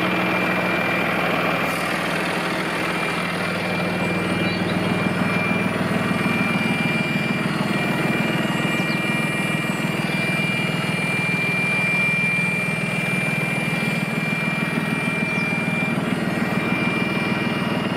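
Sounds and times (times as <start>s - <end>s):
diesel tractor engine running: 0.0s - 17.9s
thin high whine: 0.0s - 17.9s.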